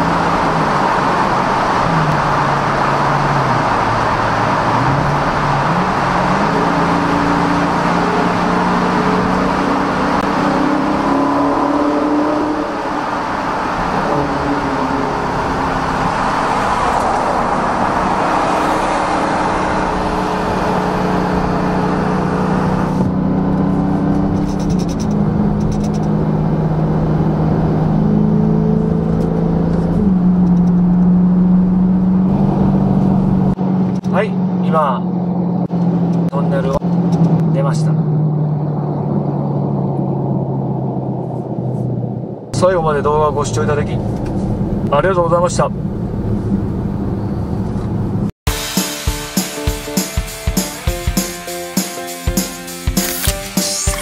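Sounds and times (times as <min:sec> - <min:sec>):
car exhaust accelerating: 0:00.0 - 0:42.6.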